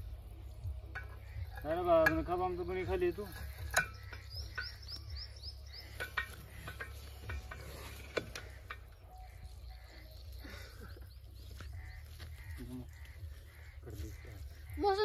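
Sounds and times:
high chirping calls: 0.0s - 15.0s
metallic clicks and clanks: 0.9s - 5.2s, 5.8s - 9.2s.

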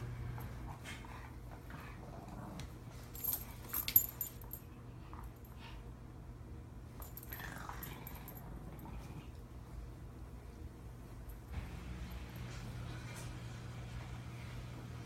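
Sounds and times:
dogs playing: 0.0s - 6.0s, 6.9s - 15.0s
collar tags jingling: 3.0s - 5.6s, 7.0s - 8.9s.

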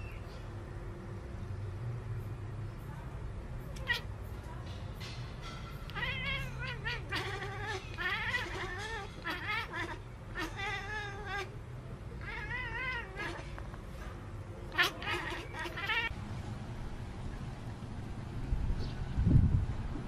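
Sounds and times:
cat yowling: 3.8s - 4.1s, 5.9s - 11.6s, 12.2s - 13.6s, 14.7s - 16.1s.

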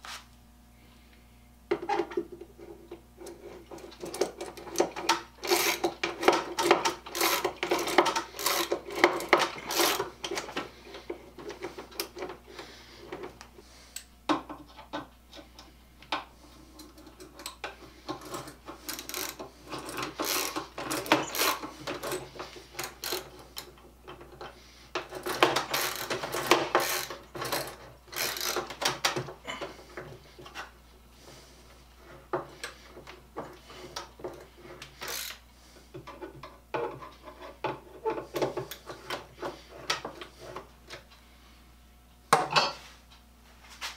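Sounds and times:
hand tool clicking and rasping on wood: 2.9s - 30.8s, 32.0s - 41.0s.

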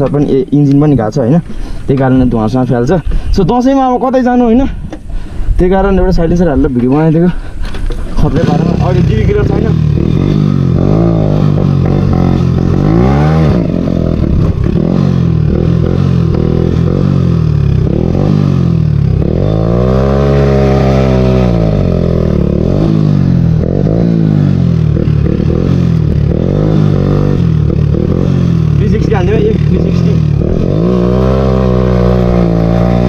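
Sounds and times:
motorcycle engine revving: 8.0s - 33.0s.

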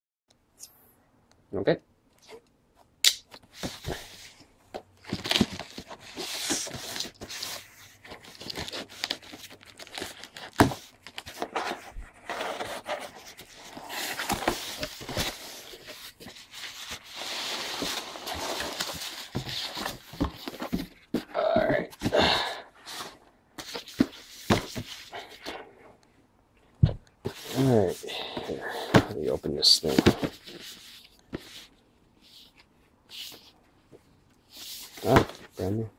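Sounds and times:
packing material rustling: 5.0s - 21.8s
cardboard flaps scraping and knocking: 10.5s - 22.2s.

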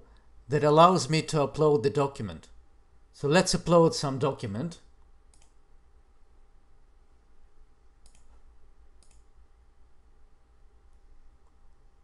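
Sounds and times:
faint low hum: 0.0s - 12.0s
computer mouse clicks: 5.0s - 5.6s, 8.0s - 9.4s.

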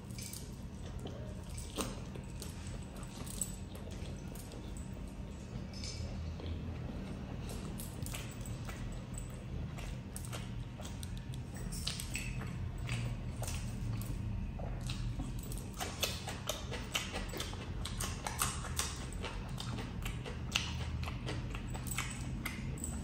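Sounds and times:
chewing and lip smacking: 0.0s - 23.0s
low steady hum: 0.0s - 23.0s
mouth clicks and crunches: 5.8s - 23.0s.

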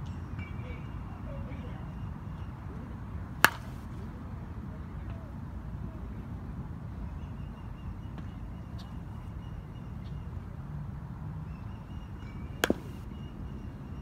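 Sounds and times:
bat hitting softball: 3.4s - 4.0s, 12.6s - 13.2s.

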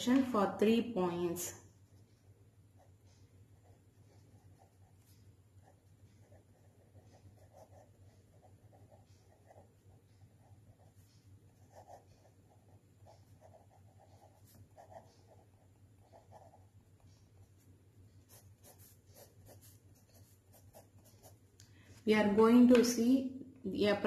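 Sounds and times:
marker scratching on paper: 2.8s - 21.4s.

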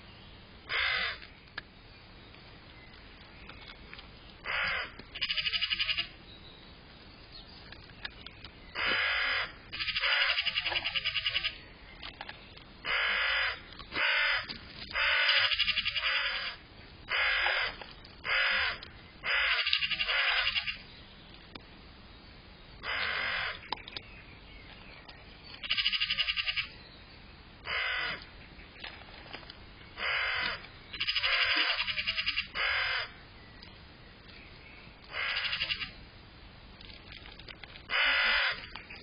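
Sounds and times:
crow cawing: 0.7s - 1.2s, 4.4s - 6.1s, 8.8s - 11.6s, 12.8s - 20.8s, 22.8s - 23.6s, 27.6s - 28.2s, 30.0s - 33.2s, 35.1s - 35.9s, 37.9s - 38.6s.

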